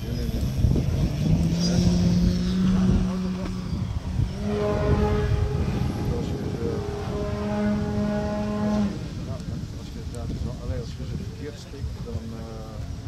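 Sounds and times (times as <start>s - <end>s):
model airplane engine droning: 0.0s - 9.7s.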